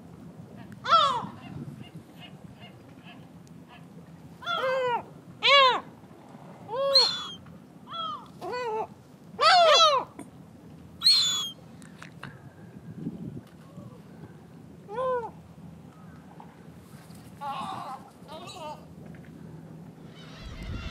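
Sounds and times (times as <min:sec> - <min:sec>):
gulls calling: 0:06.7 - 0:08.8.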